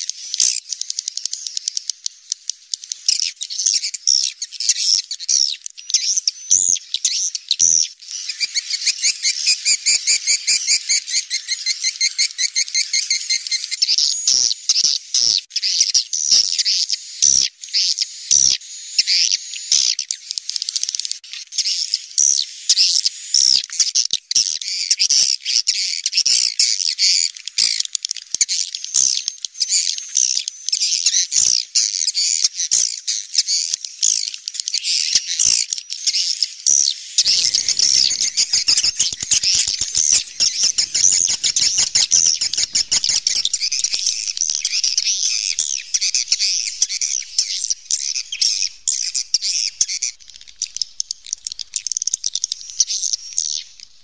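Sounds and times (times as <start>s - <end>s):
swiftlets twittering chirps: 37.2s - 54.0s
rapid clicks: 37.3s - 47.2s.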